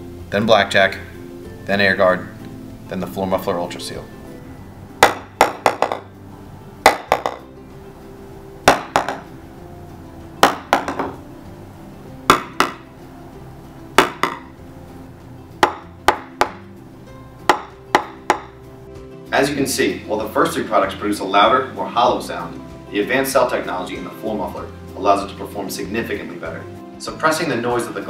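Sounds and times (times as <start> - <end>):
golf ball bouncing on laminate floor: 5.0 - 6.1, 6.8 - 7.5, 8.7 - 9.3, 10.4 - 11.2, 12.3 - 12.9, 14.0 - 14.6, 15.6 - 16.7, 17.4 - 18.6.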